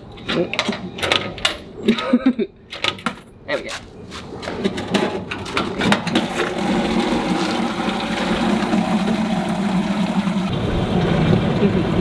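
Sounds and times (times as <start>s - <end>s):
machine humming: 6.1s - 12.0s.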